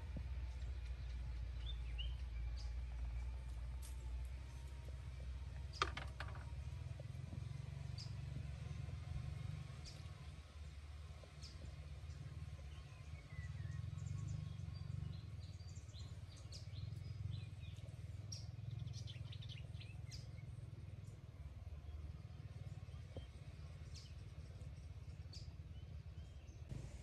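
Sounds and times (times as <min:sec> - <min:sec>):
birds chirping and calling: 0:11.2 - 0:21.2
steady low rumble: 0:26.7 - 0:27.0.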